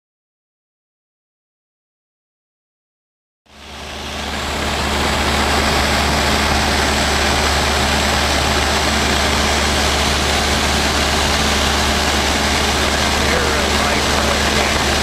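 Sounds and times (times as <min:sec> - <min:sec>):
light airplane engine droning: 0:03.5 - 0:15.0.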